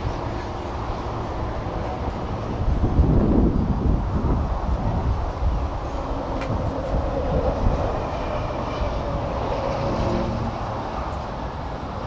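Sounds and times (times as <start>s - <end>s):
steady low rumble: 0.0s - 12.0s
wind buffeting microphone: 0.0s - 12.0s.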